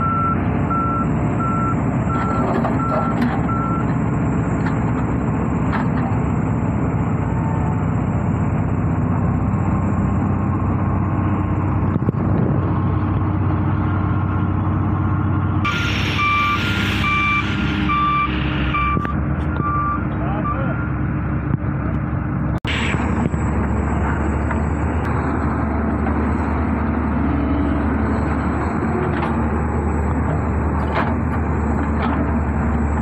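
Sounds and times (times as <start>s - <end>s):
reversing alarm beeping: 0.0s - 3.9s, 15.7s - 21.0s
excavator diesel engine running: 0.0s - 33.0s.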